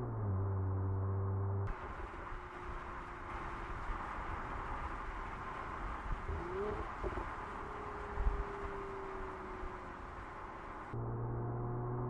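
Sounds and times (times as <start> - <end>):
tyre and wind noise: 1.7 - 11.0.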